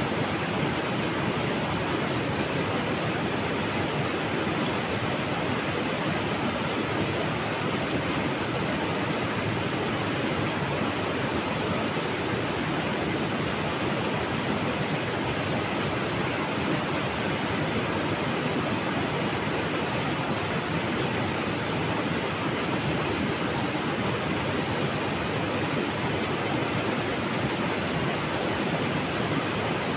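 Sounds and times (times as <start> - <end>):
river water rushing over rocks: 0.0 - 29.9.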